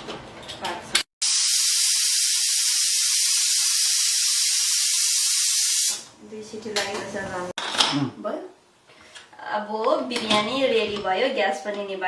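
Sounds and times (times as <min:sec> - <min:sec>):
pressure cooker steam hissing: 0:01.2 - 0:06.1.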